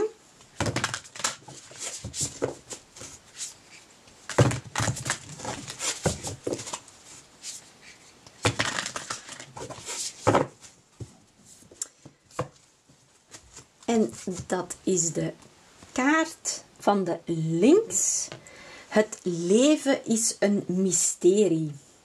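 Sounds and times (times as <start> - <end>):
cards being shuffled: 0.6 - 3.6, 4.3 - 7.6, 8.4 - 10.5.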